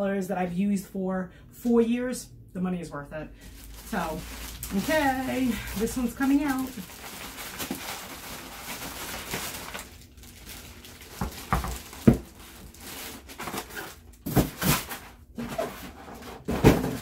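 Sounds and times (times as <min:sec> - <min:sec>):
plastic bag crinkling: 0:03.4 - 0:15.9
foam packaging creaking: 0:03.5 - 0:17.0.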